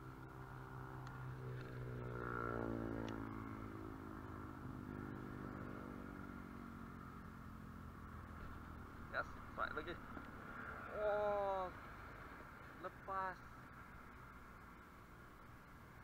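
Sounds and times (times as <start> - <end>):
vehicle engine passing by: 0.0 - 12.6.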